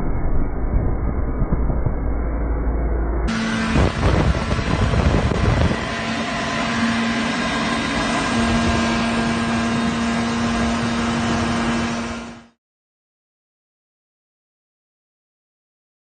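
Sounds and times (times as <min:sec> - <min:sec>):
wind buffeting microphone: 0:03.3 - 0:12.1
quad bike engine running: 0:03.3 - 0:12.5.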